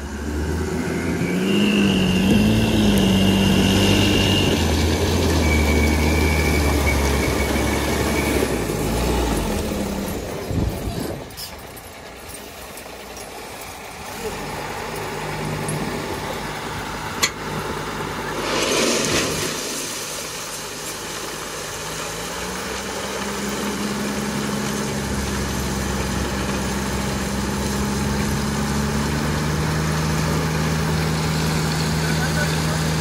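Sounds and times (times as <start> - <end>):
diesel truck engine revving: 0.0 - 33.0
short rush of noise: 18.2 - 20.9.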